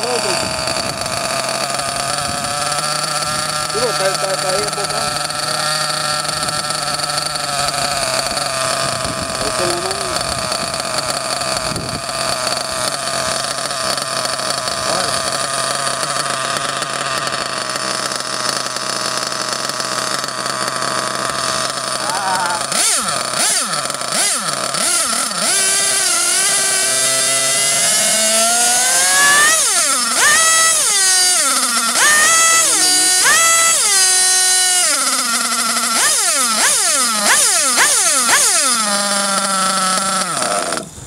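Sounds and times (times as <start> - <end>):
nitro engine idling and revving: 0.0 - 41.0.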